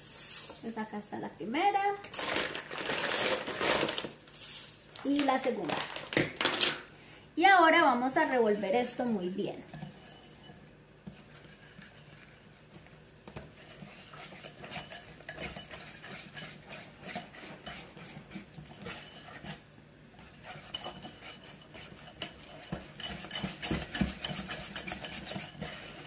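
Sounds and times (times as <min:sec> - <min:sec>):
whisk clicking against bowl: 0:12.7 - 0:19.6, 0:20.2 - 0:26.0.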